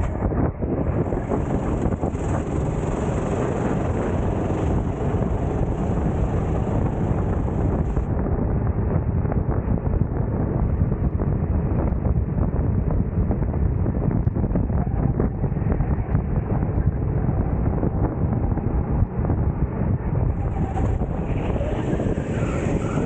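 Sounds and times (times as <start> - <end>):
go-kart engine: 0.0 - 8.1, 20.2 - 23.0
wind buffeting microphone: 0.0 - 23.0.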